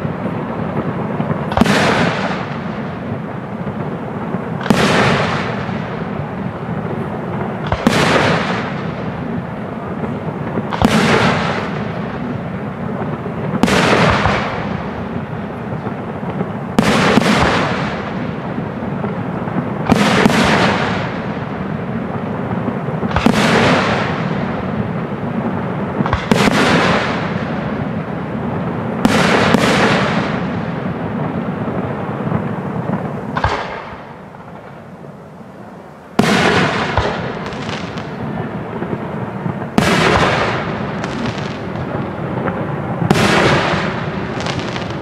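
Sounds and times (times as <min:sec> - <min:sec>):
firework shells bursting: 0:32.2 - 0:35.0, 0:36.1 - 0:45.0.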